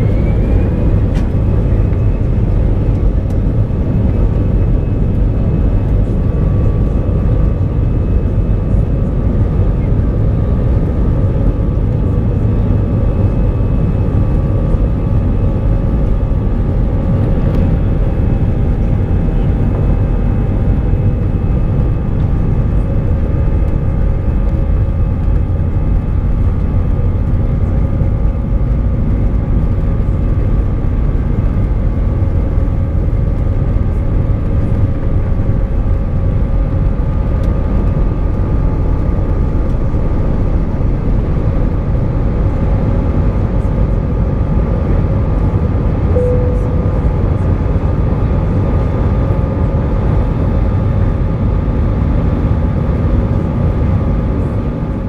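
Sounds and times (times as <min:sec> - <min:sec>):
jet engine whining tones: 0:00.0 - 0:29.3, 0:45.9 - 0:50.2
jet engine rumble: 0:00.0 - 0:55.0.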